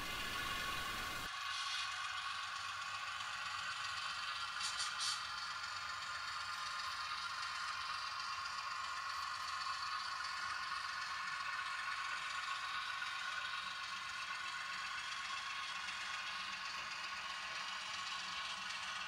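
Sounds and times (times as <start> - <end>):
model train rolling on track: 0.0 - 19.0.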